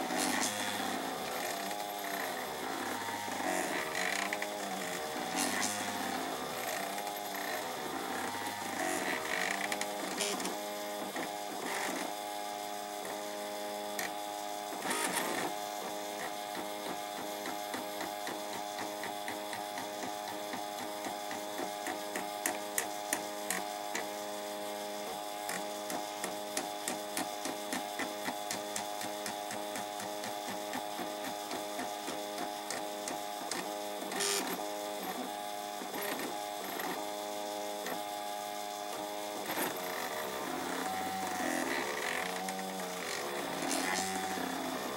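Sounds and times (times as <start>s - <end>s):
stepper motors whining: 37.8s - 44.9s.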